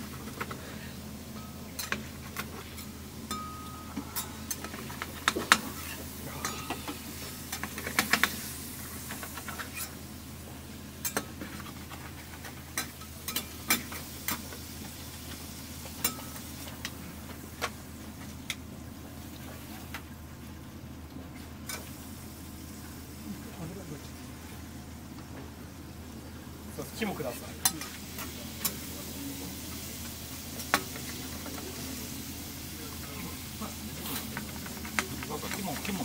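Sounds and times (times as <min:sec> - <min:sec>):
steady low hum: 0:00.0 - 0:36.0
utensils and dishes clinking: 0:01.3 - 0:08.4, 0:11.0 - 0:14.5, 0:16.0 - 0:16.4.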